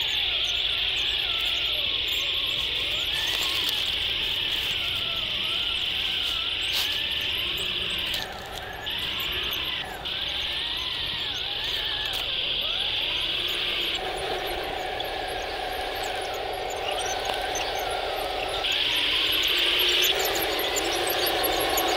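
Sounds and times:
toy tank motors whining: 0.0s - 21.9s.

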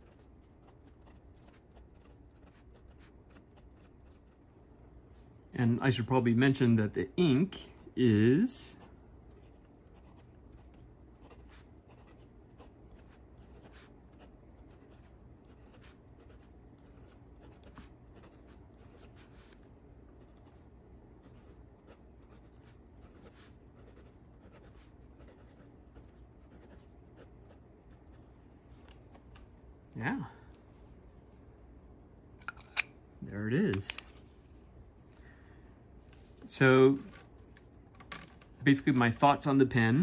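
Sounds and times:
pen nib scratching paper: 0.0s - 4.4s.

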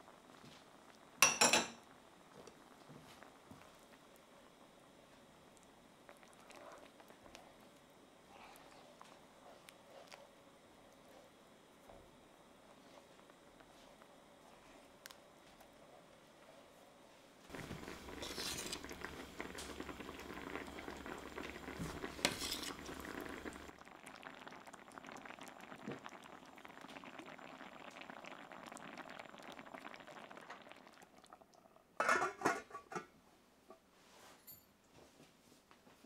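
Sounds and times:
rice bubbling in a skillet: 0.0s - 15.8s, 17.5s - 32.8s
spatula stirring: 17.5s - 19.4s, 21.8s - 23.7s
metal lid clanking on pan: 32.0s - 33.1s.

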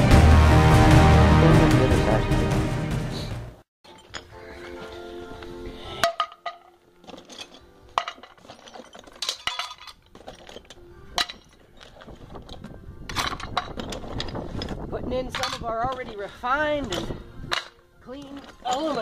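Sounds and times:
metal pieces dropped into bucket: 6.1s - 14.3s.

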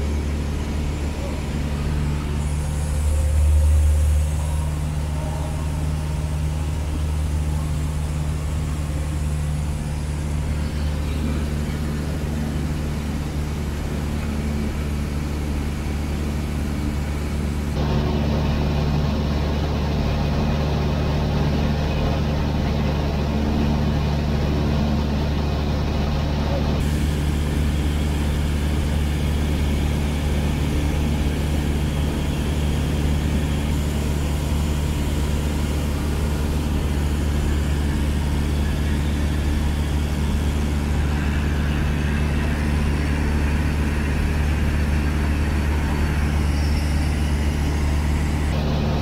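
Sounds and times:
airplane engine droning: 0.0s - 49.0s.

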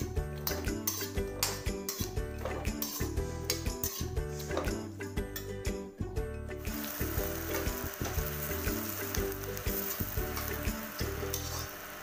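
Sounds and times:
background music with steady beat: 0.0s - 12.0s
onions sizzling in oil: 6.6s - 12.0s.

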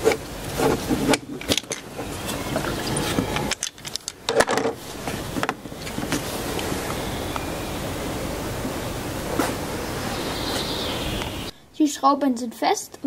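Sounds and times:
tools clicking and knocking: 1.0s - 1.9s.

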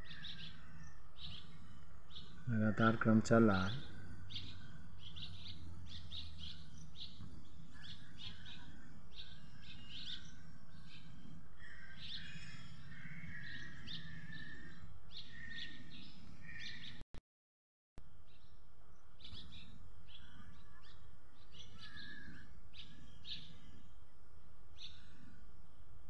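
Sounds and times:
low steady hum: 0.0s - 16.5s, 18.0s - 26.0s
small birds chirping: 0.0s - 17.0s, 18.2s - 26.0s.

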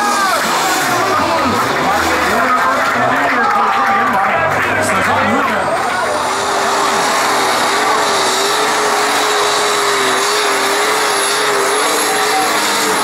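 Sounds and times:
tractor engine running flat out: 0.0s - 13.0s.

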